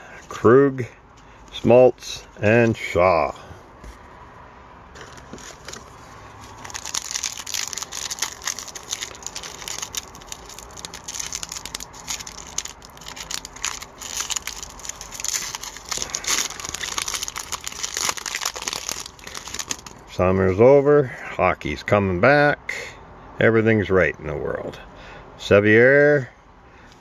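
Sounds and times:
foil wrapper crinkling and tearing: 5.0s - 20.0s.

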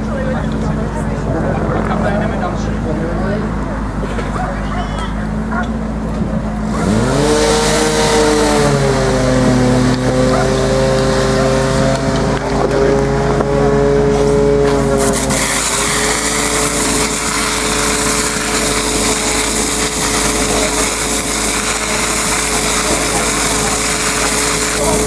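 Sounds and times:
pump engine droning whine: 0.0s - 25.0s
high-pressure water jets hissing: 6.6s - 25.0s.

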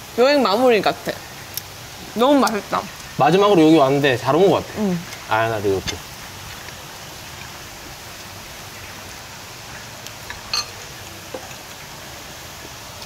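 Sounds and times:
steady background hiss: 0.0s - 13.0s
cutlery clinking on plates: 10.4s - 10.8s.

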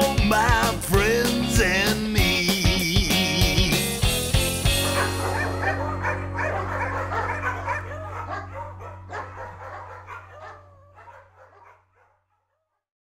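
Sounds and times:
dogs barking and yipping: 4.7s - 12.7s
held low musical note: 4.8s - 9.6s.

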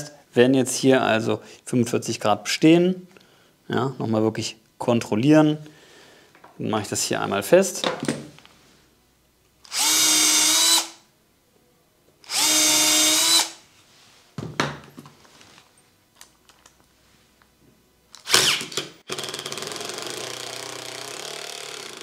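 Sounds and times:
cordless drill boring into wood: 9.7s - 11.0s, 12.2s - 13.6s, 18.2s - 22.0s.

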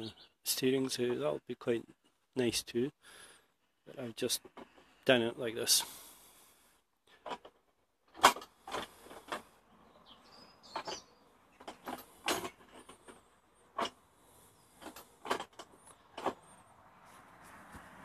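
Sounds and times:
faint birds chirping: 0.0s - 1.1s, 8.9s - 17.6s
clicks and knocks of wooden steering: 4.3s - 5.0s, 7.1s - 9.5s, 10.6s - 14.0s, 14.7s - 16.6s.

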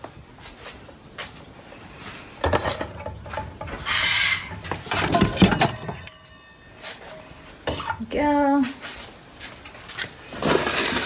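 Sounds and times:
metal bowls clattering: 2.4s - 8.0s.

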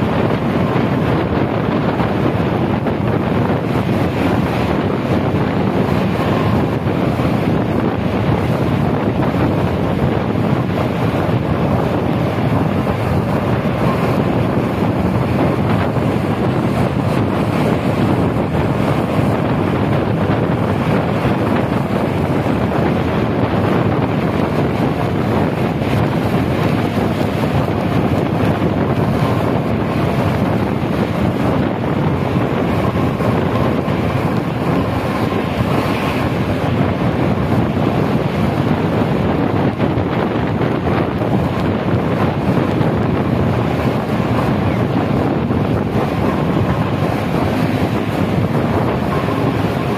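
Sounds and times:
bus running and road noise: 0.0s - 49.9s
wind buffeting microphone: 0.0s - 49.9s.

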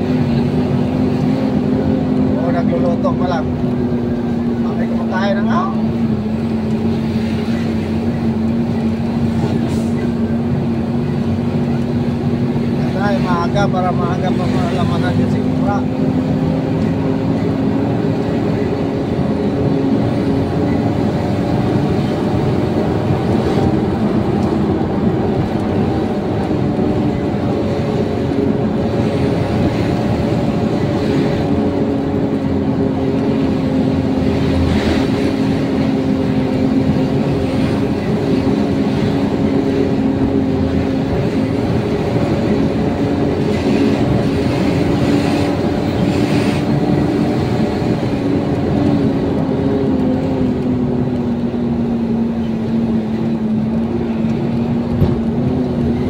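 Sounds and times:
road rumble: 0.0s - 56.0s
truck engine humming: 0.0s - 56.0s.

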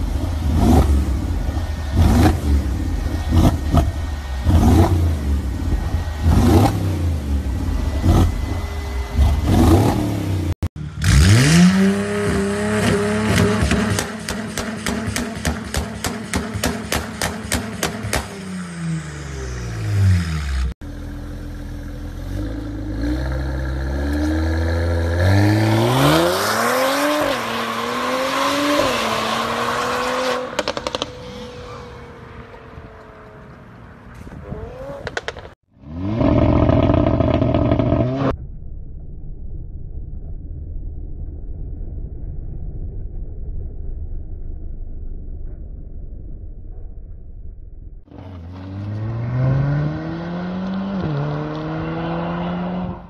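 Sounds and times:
muffled car engine running: 0.0s - 11.0s
car engine revving: 0.0s - 31.8s, 48.1s - 53.0s
car accelerating through upshifts: 48.2s - 53.0s.

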